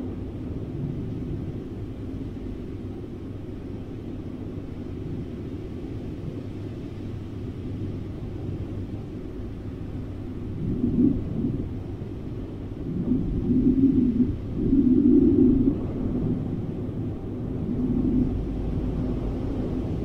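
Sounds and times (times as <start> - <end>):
low rumble: 8.2 - 20.0.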